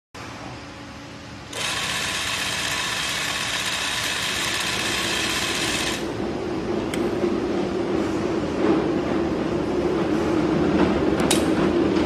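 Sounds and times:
sewing machine running fast: 1.5 - 6.1.

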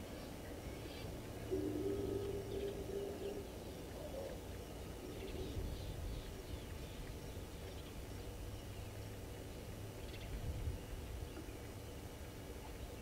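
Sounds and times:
faint high bird chirps: 0.7 - 6.0.

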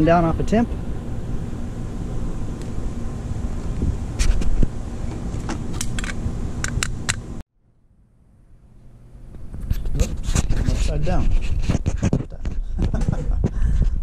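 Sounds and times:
wind rumble on microphone: 0.0 - 7.0, 9.3 - 14.0
sharp clicks of grill vent: 3.7 - 7.3.

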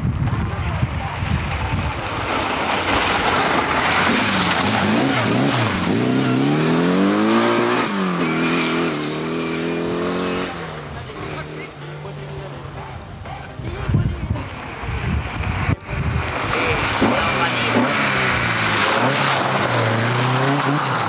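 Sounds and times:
rally car engine revving: 0.8 - 21.0
tyres and stones on gravel: 1.4 - 7.1.

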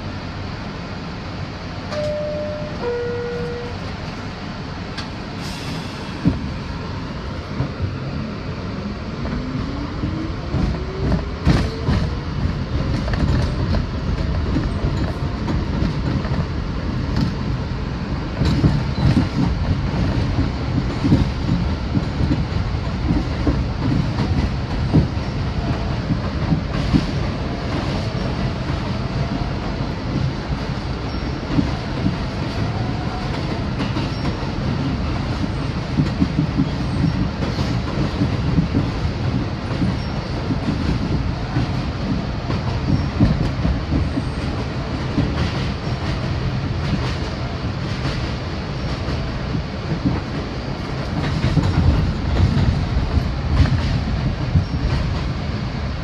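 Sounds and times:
two-note falling door chime: 2.0 - 3.8.

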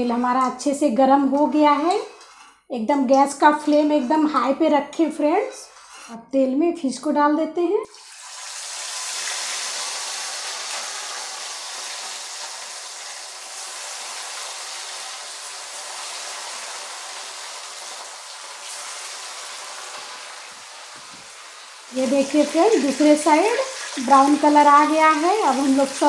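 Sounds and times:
fish sizzling in hot oil: 7.9 - 26.0.

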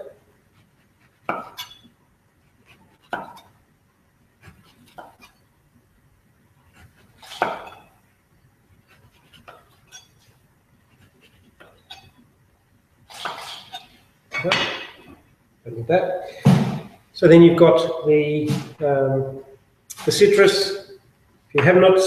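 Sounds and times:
knife cutting fruit peel: 0.6 - 1.9, 2.6 - 3.6, 4.4 - 5.4, 6.7 - 8.0, 8.8 - 12.2, 13.1 - 14.0.

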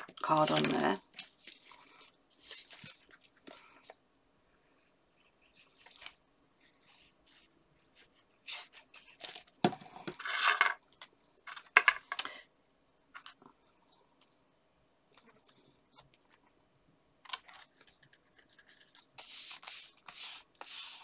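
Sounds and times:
paper scraping and crinkling: 0.0 - 3.6
paper rustling: 0.0 - 4.0, 5.2 - 7.5, 17.2 - 21.0.

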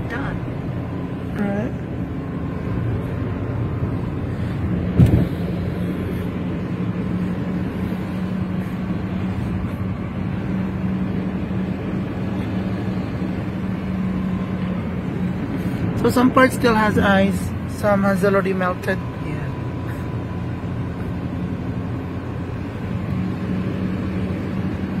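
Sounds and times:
car cabin road noise: 0.0 - 25.0
thump: 5.0 - 5.3.

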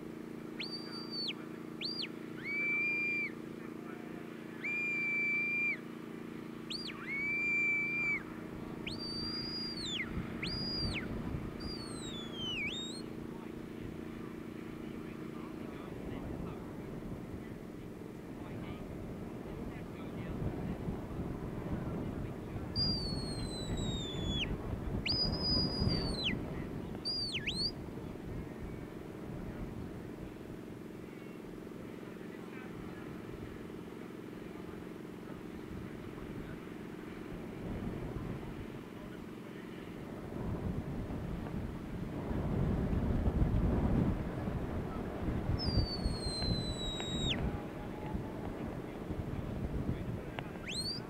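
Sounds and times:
low background rumble: 0.0 - 51.0
low hum: 0.0 - 51.0
shepherd's whistle: 0.6 - 3.4, 4.6 - 5.8, 6.7 - 13.1, 22.8 - 26.4, 27.0 - 27.8, 45.6 - 47.5, 50.6 - 51.0.

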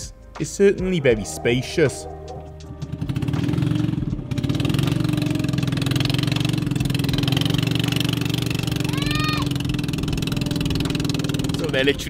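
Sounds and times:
small boat engine running: 2.6 - 12.0.

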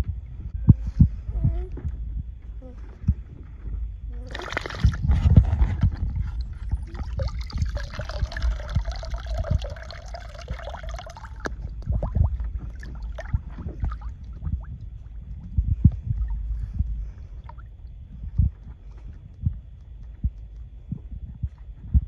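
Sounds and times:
water splashing and sloshing: 4.2 - 18.0.

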